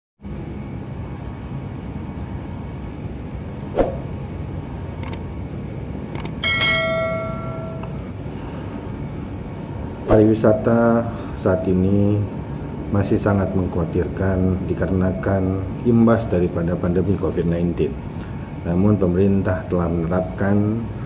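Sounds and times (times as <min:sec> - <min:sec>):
room hum: 0:00.2 - 0:21.0
sharp click: 0:05.0 - 0:05.2, 0:06.1 - 0:06.4
bell ding: 0:06.4 - 0:08.1.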